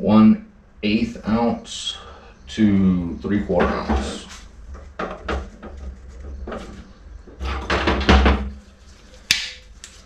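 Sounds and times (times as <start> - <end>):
metal clacks and knocks: 3.6 - 8.5.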